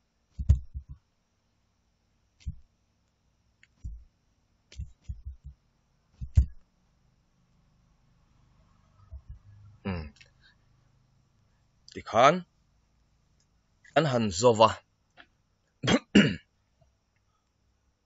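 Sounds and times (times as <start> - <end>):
keyboard and mouse clicks: 3.6 - 4.0, 4.7 - 5.5, 6.2 - 6.6.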